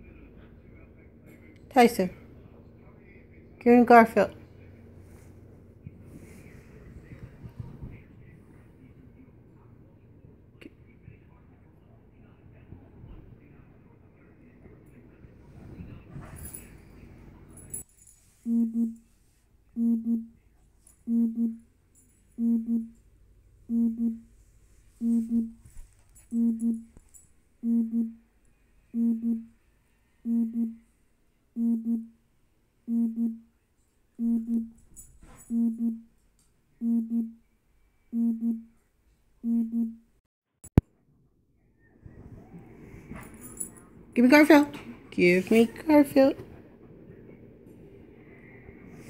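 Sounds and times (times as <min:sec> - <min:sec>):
low buzzing tone in pairs: 0:18.5 - 0:19.0, 0:21.0 - 0:21.6, 0:22.4 - 0:23.0, 0:23.7 - 0:24.3, 0:25.0 - 0:25.6, 0:26.3 - 0:27.0, 0:30.3 - 0:30.9, 0:31.6 - 0:32.2, 0:32.9 - 0:33.4.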